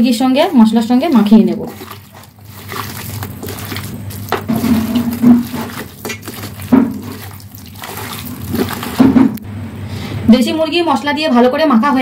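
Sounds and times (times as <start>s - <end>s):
hand squishing chicken in bowl: 0.0s - 9.4s.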